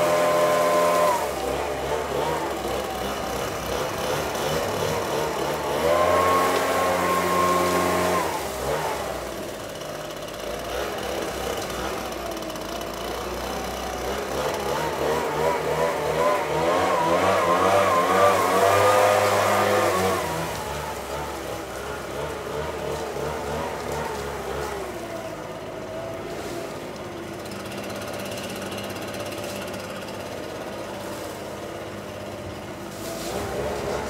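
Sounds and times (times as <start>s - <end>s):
leaf blower revving: 0.0s - 34.0s.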